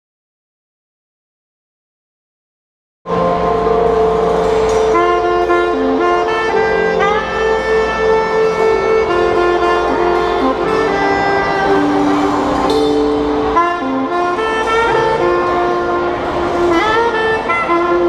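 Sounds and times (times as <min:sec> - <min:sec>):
soprano saxophone melody: 0:03.1 - 0:18.0
jazz piano bass and drums: 0:03.6 - 0:18.0.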